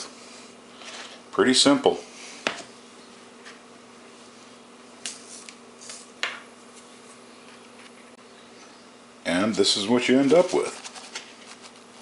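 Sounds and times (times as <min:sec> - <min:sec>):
plant stalks rustling: 0:10.0 - 0:11.9.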